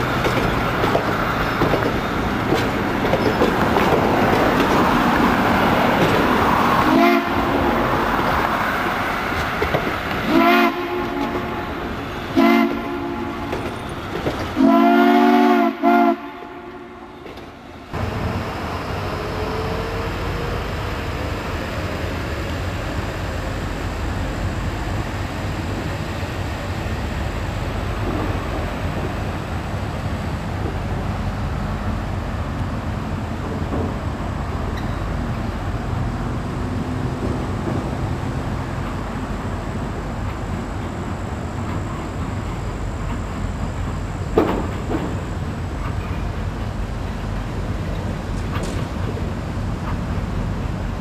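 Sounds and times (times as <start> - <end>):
diesel locomotive rumbling: 0.0 - 51.0
steam whistle blasts: 6.9 - 7.5, 10.3 - 11.6, 12.4 - 13.5, 14.6 - 17.1.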